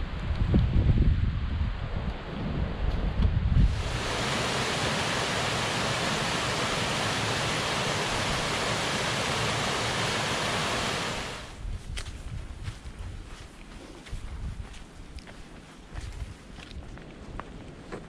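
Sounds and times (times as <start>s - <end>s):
wind buffeting microphone: 0.0s - 13.4s, 14.0s - 15.0s
creek rushing over boulders: 3.7s - 11.6s.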